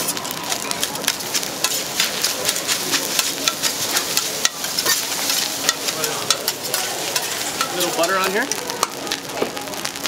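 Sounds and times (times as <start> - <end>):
food sizzling on griddle: 0.0 - 10.0
metal spatulas clacking on griddle: 1.1 - 9.0.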